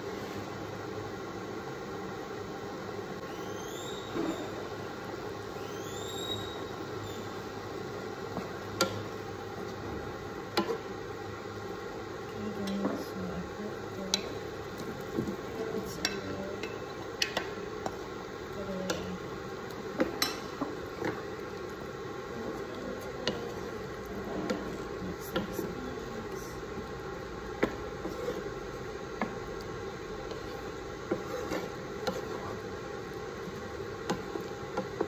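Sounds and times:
steady hiss: 0.0s - 35.0s
wooden spatula scraping a pan: 22.5s - 26.5s, 27.6s - 29.4s, 30.2s - 32.8s.

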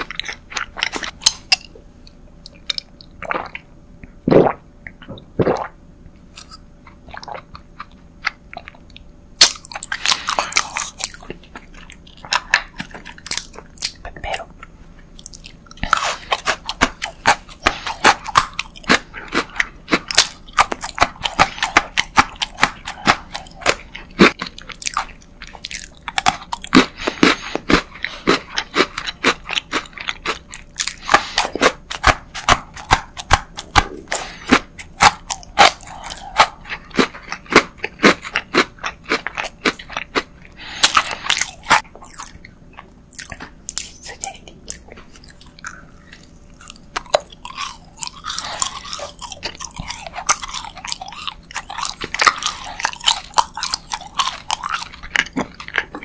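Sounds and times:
crunching biscuit sticks: 0.0s - 3.2s, 6.4s - 56.0s.

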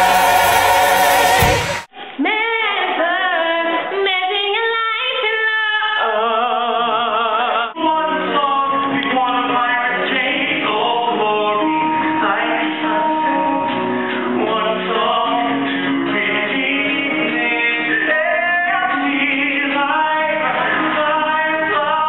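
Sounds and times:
live stage singing: 0.0s - 22.0s
woman singing unaccompanied: 2.2s - 13.7s.

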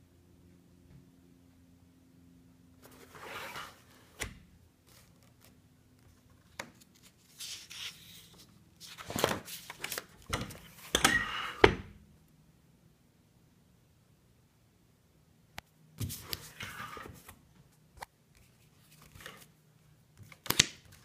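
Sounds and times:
paper pages rustling: 4.8s - 10.9s, 18.4s - 19.5s.

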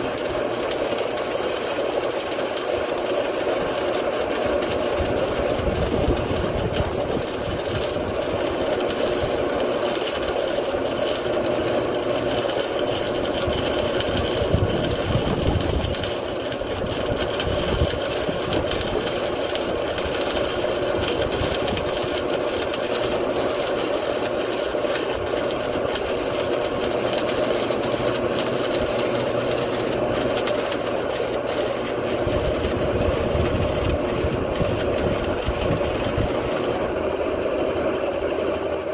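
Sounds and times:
fine crackle: 0.0s - 36.9s
welding transformer buzzing: 0.0s - 37.4s.

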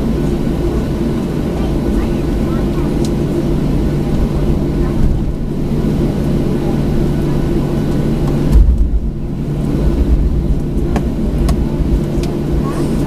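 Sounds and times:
jet engines idling in cabin: 0.0s - 13.0s
low rumbling thump: 4.8s - 5.6s, 8.2s - 12.4s.

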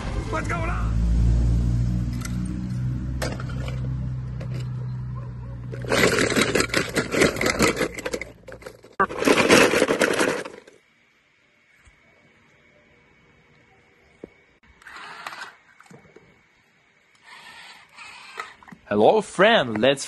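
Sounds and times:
low steady rumble: 0.0s - 9.0s
toy cars clattering in basket: 5.7s - 10.8s.

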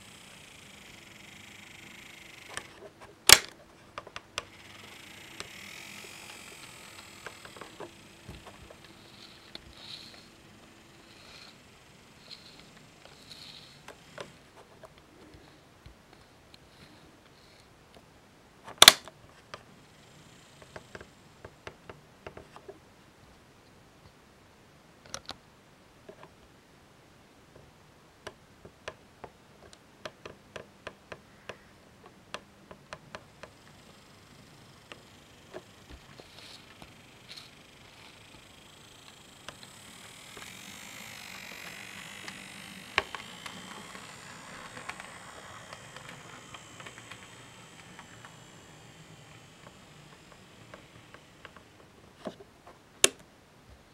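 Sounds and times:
faint thin whine: 0.0s - 24.2s, 31.2s - 53.9s
sharp click: 2.5s - 3.6s, 18.7s - 19.1s
model train clicking on track: 4.1s - 14.5s, 32.7s - 51.8s.

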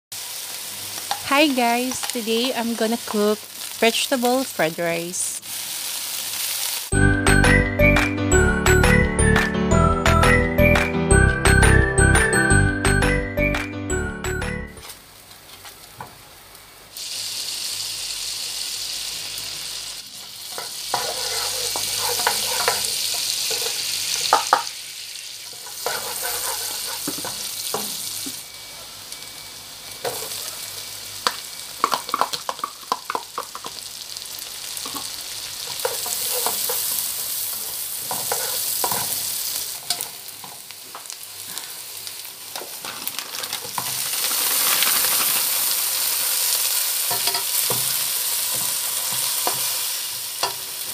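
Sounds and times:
onion sizzling in a wok: 0.1s - 7.0s, 14.8s - 50.9s
plastic spatula scraping a pan: 21.0s - 22.8s.

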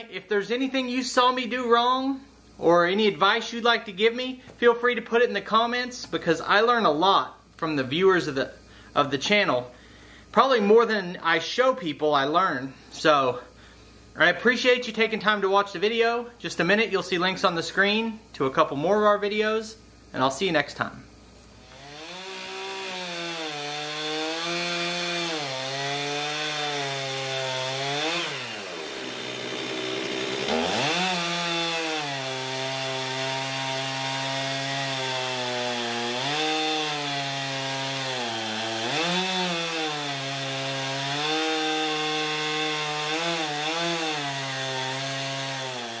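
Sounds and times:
chainsaw cutting a log: 21.6s - 46.0s.

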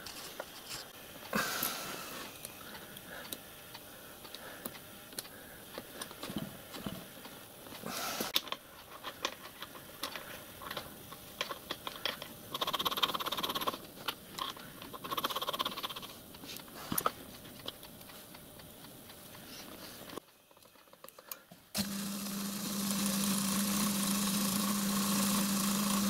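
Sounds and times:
fast rattling ticks: 11.4s - 16.4s.

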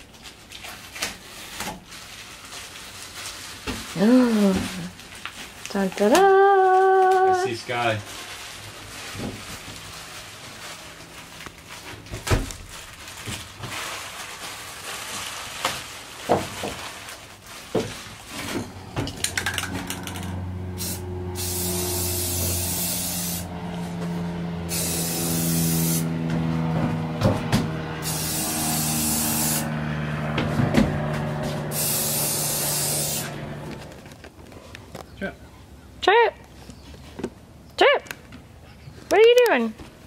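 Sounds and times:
rustling: 0.0s - 5.7s, 6.5s - 20.1s
aerosol spray can hissing: 20.8s - 23.5s, 24.7s - 26.1s, 28.0s - 29.7s, 31.7s - 33.4s.

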